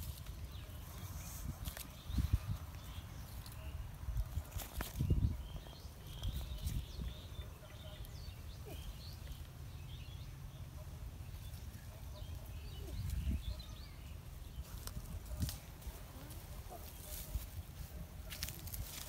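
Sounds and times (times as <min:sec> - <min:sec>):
bird chirps: 0:04.8 - 0:15.4.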